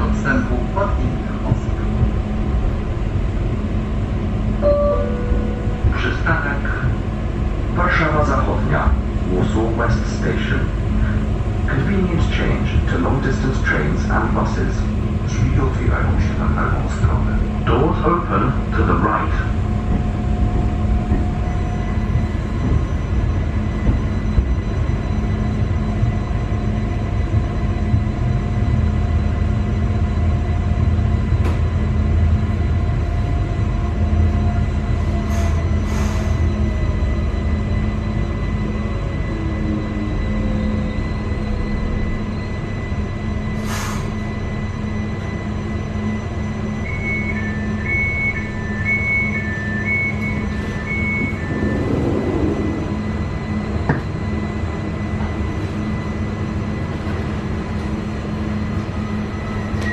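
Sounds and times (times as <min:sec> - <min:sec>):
train equipment humming: 0:00.0 - 0:59.9
two-tone beeping: 0:04.6 - 0:05.9, 0:46.8 - 0:52.9
whine falling in pitch: 0:50.9 - 0:54.6.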